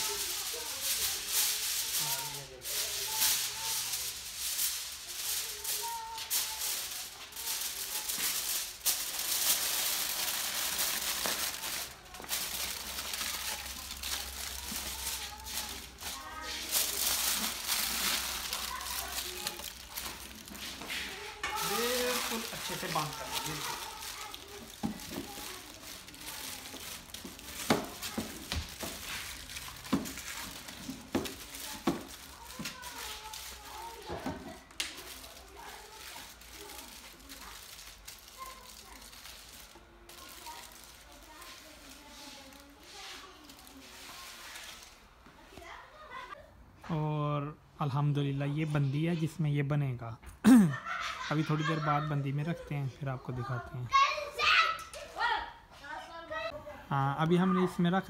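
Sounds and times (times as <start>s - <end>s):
aluminium foil crinkling: 0.0s - 45.0s.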